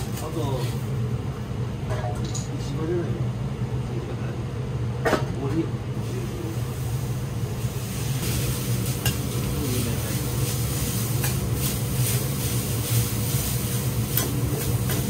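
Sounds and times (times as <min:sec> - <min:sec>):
noodles sizzling on griddle: 0:00.0 - 0:00.9, 0:06.0 - 0:15.0
steady low hum: 0:00.0 - 0:15.0.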